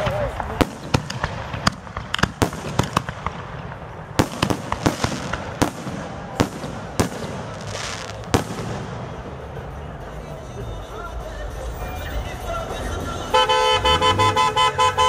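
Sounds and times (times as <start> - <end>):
fireworks bangs: 0.0 - 10.2
fireworks crackle: 0.0 - 12.7.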